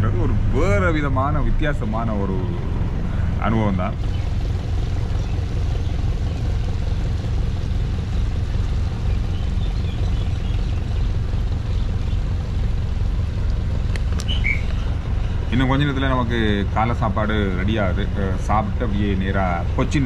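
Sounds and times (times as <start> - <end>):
boat engine droning: 0.0 - 20.0.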